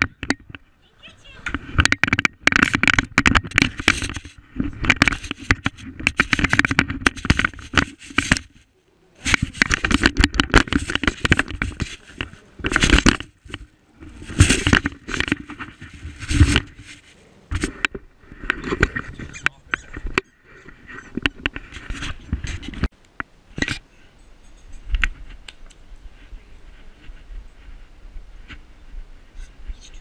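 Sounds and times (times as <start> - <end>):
camera mount scraping and rubbing: 1.5 - 8.6, 9.2 - 22.9, 23.6 - 23.8.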